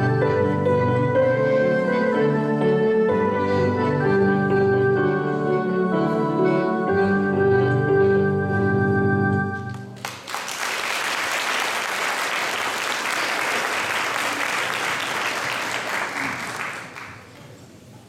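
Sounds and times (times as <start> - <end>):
audience applause: 9.9 - 17.6.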